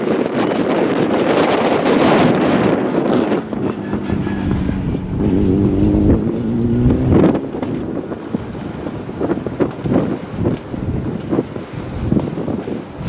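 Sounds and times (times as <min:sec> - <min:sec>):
wind buffeting microphone: 0:00.0 - 0:13.0
rally car engine accelerating: 0:03.2 - 0:08.4.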